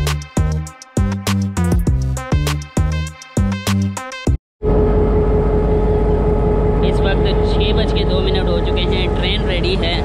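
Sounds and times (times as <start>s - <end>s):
background music with plucked notes: 0.0s - 4.4s.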